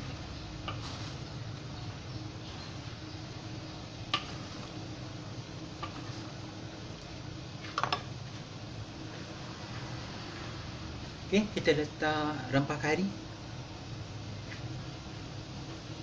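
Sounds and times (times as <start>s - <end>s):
spatula stirring sauce in wok: 0.0s - 6.8s
steady low hum: 0.0s - 16.0s.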